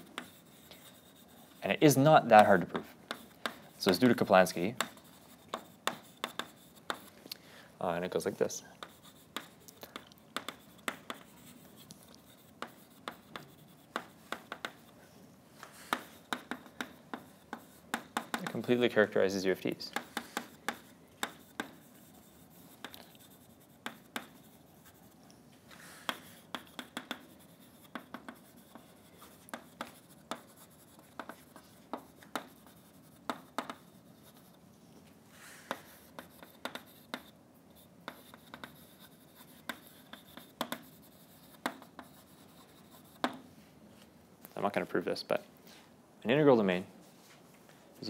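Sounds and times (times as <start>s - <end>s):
chalk tapping on blackboard: 0.0s - 7.1s, 8.8s - 14.9s, 15.6s - 18.9s, 19.9s - 25.1s, 26.0s - 34.6s, 35.7s - 43.5s
chalk scratching strokes: 0.0s - 7.2s, 8.0s - 9.8s, 10.4s - 34.6s, 35.3s - 43.4s.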